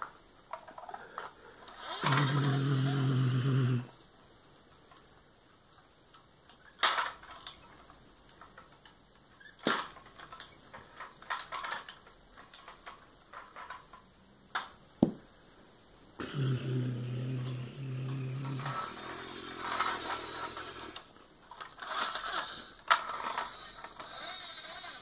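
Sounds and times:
man imitating an engine: 2.0s - 3.9s, 16.2s - 18.9s
plastic toy clicks and knocks: 6.1s - 14.8s.

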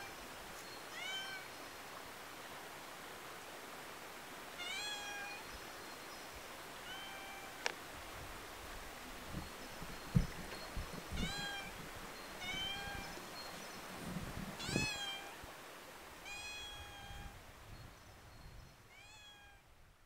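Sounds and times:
cat meowing: 0.9s - 1.4s, 4.6s - 5.4s, 6.9s - 7.6s, 11.2s - 11.7s, 12.4s - 13.1s, 14.6s - 15.4s, 16.2s - 17.4s, 18.9s - 19.6s
low thumps: 9.3s - 11.2s.

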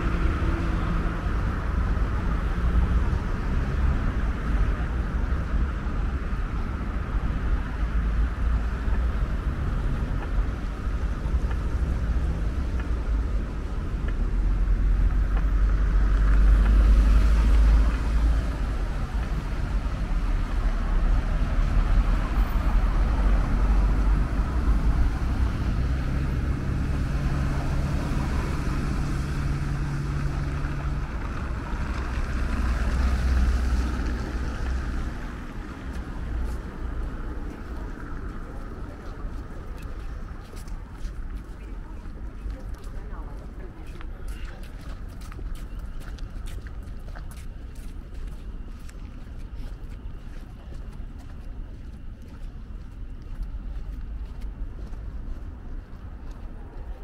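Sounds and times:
passing cars rumbling: 0.0s - 44.2s.

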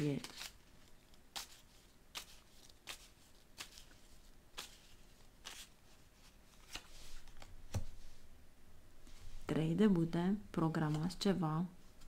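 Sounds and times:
cards being shuffled: 0.0s - 8.0s.

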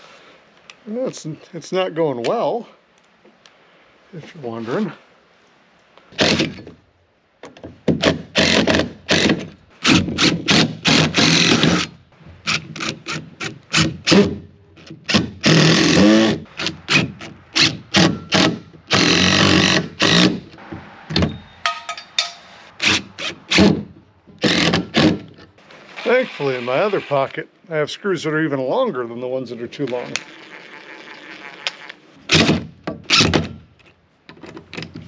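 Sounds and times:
power drill driving screws: 6.2s - 6.6s, 8.4s - 11.9s, 15.1s - 20.4s, 24.4s - 25.2s.

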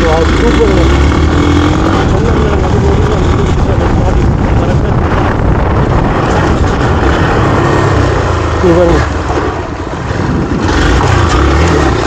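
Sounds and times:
motorcycle engine running: 0.0s - 12.0s
wind noise on microphone: 1.0s - 8.5s.

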